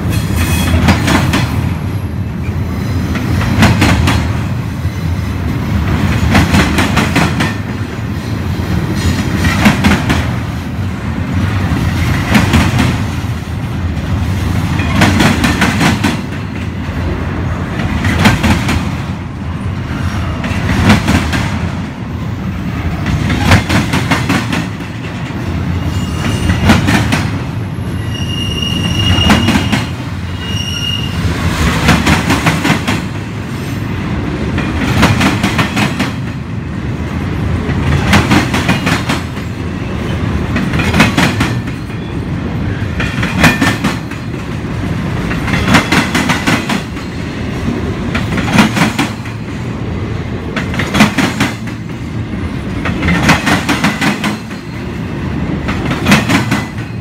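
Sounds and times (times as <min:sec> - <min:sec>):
train rumbling: 0:00.0 - 0:57.0
high wheel squeals: 0:25.8 - 0:26.7, 0:27.8 - 0:31.3
wheels clickety-clack: 0:37.6 - 0:39.6, 0:40.5 - 0:42.1, 0:43.0 - 0:47.1, 0:48.1 - 0:49.4, 0:52.6 - 0:54.8, 0:55.6 - 0:57.0.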